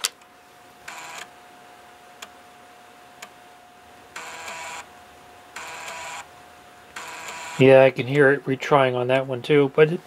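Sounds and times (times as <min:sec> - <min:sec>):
faint steady whine: 0:00.0 - 0:10.0
floppy drive head buzzing: 0:04.1 - 0:08.4.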